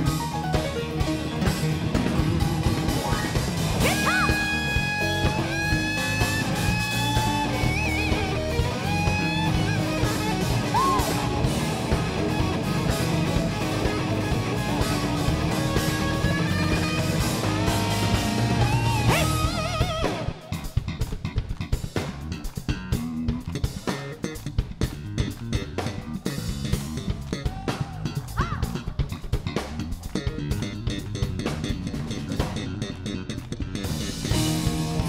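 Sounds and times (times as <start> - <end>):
rock band playing: 0.0 - 35.0
electric guitar solo: 2.3 - 20.7.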